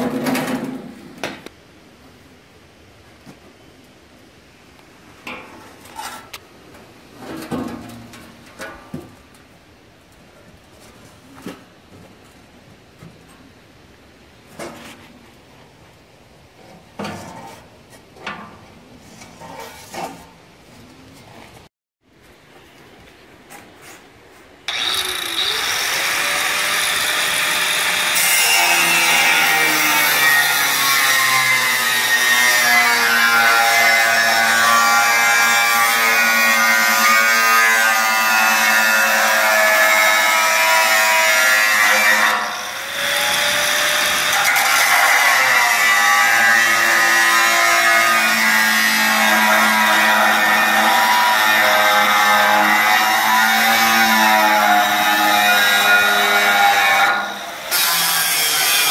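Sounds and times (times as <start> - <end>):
angle grinder cutting metal: 24.7 - 58.9.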